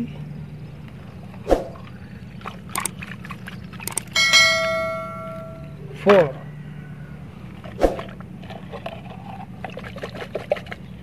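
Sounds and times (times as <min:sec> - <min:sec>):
bell-like ding: 0:04.1 - 0:05.8.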